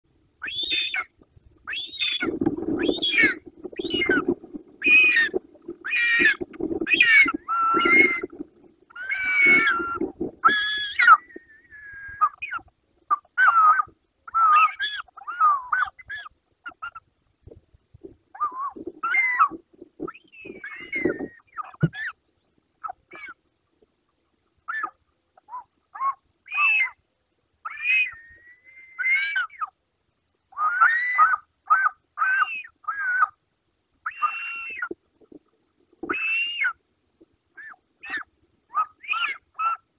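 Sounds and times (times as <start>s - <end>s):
eagles whistled calls: 0.4s - 1.1s, 1.7s - 8.3s, 8.9s - 12.6s, 20.1s - 22.2s, 34.1s - 35.0s, 36.1s - 36.8s, 37.6s - 39.8s.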